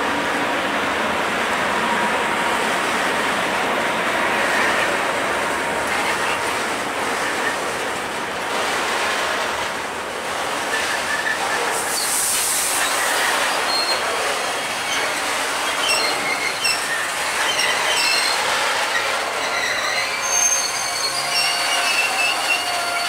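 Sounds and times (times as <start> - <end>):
train wheels rumbling on rails: 0.0 - 23.0
high-pitched wheel squeals: 14.9 - 23.0.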